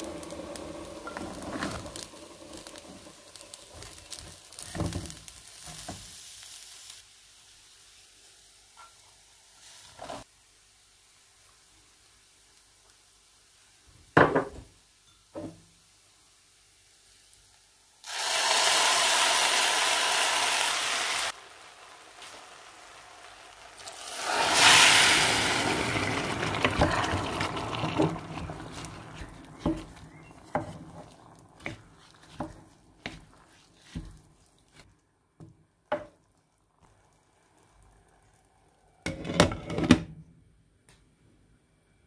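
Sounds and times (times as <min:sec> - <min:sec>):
water sizzling in hot pot: 0:00.0 - 0:39.6
wooden spoon knocking pot: 0:26.6 - 0:33.3
liquid pouring into pot: 0:35.9 - 0:39.1.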